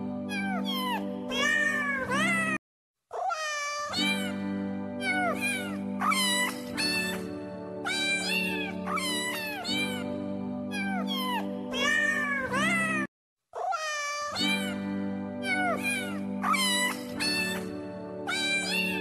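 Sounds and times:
background music held chord: 0.0s - 1.4s, 4.2s - 12.8s, 14.6s - 19.0s
cat meowing: 0.3s - 4.4s, 5.0s - 7.2s, 7.9s - 10.0s, 10.7s - 14.8s, 15.4s - 17.7s, 18.3s - 19.0s.

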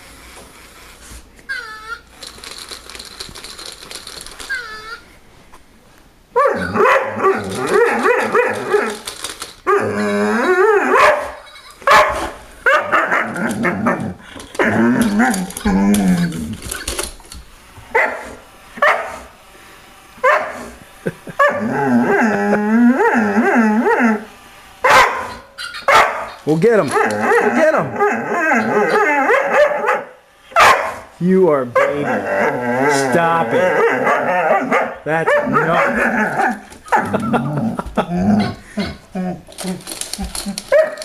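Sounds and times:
dog wavering barks and growls: 6.4s - 9.0s, 9.7s - 16.4s, 24.9s - 31.0s, 31.7s - 39.4s.

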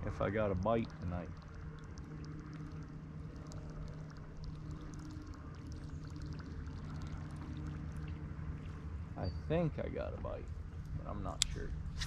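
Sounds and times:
small ticks: 0.0s - 8.9s
water gurgling and lapping: 0.0s - 9.2s
low hum: 0.0s - 12.0s.

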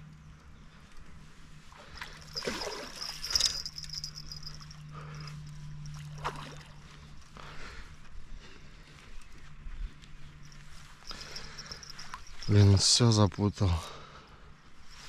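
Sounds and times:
fish splashing in water: 2.0s - 4.4s.

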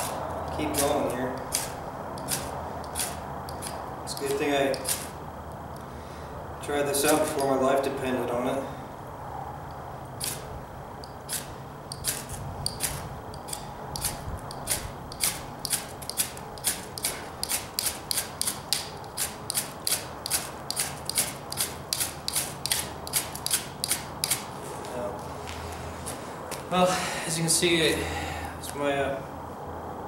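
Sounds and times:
knife scraping ferro rod: 0.0s - 5.2s, 7.0s - 7.5s, 10.2s - 10.5s, 11.3s - 24.5s.

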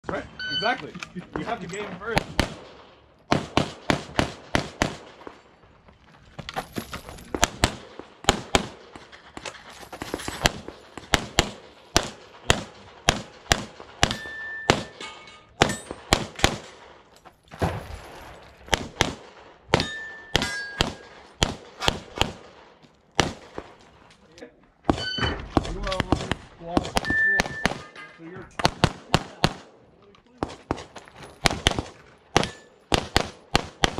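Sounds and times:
pistol shots: 2.1s - 5.4s, 7.3s - 9.0s, 10.4s - 15.0s, 15.6s - 17.0s, 18.7s - 23.7s, 24.9s - 28.0s, 28.6s - 29.7s, 30.4s - 33.9s
bullets ringing on steel plates: 14.0s - 16.1s, 19.8s - 21.2s, 27.0s - 28.2s, 32.4s - 32.8s.

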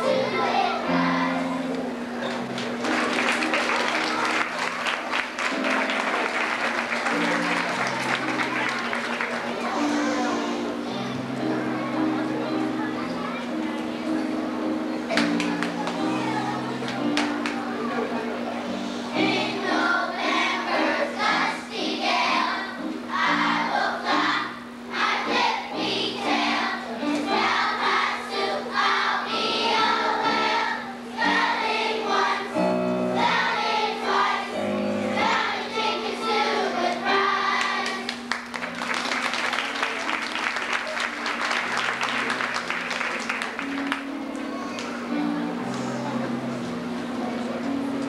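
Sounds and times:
children's choir singing: 0.0s - 38.4s
piano accompaniment: 0.0s - 48.0s
applause: 2.5s - 9.7s, 15.2s - 16.0s, 16.9s - 17.6s, 37.8s - 44.1s.

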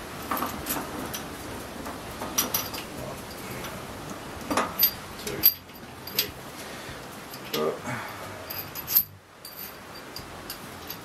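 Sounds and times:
light metal clicks and clinks: 2.2s - 3.8s, 4.5s - 6.4s, 7.3s - 7.8s, 8.4s - 11.0s.

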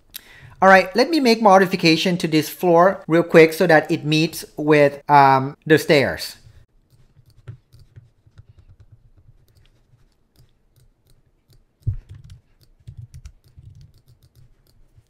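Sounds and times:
computer mouse clicks: 6.8s - 15.0s.

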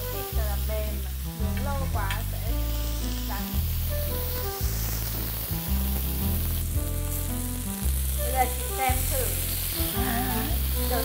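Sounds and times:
background music with bass line: 0.0s - 11.0s
burger patties sizzling: 0.0s - 11.0s.

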